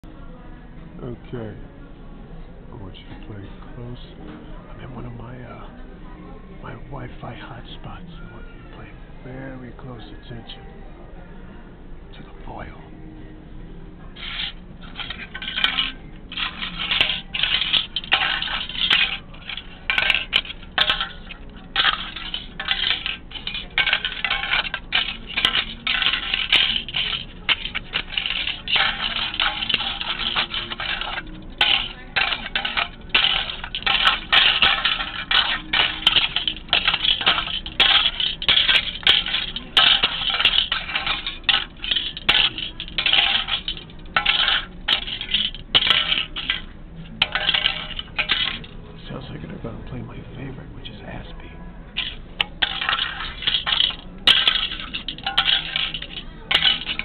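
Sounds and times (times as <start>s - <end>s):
metallic foil crinkling: 14.2s - 46.6s, 52.0s - 57.0s.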